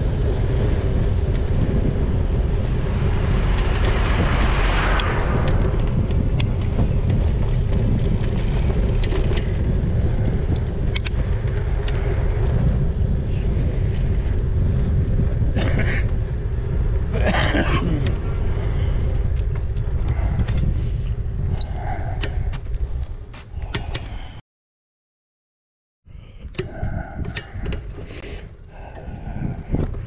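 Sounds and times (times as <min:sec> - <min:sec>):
wind and road noise rumble: 0:00.0 - 0:24.4, 0:26.0 - 0:30.0
scattered clicks: 0:02.6 - 0:12.3.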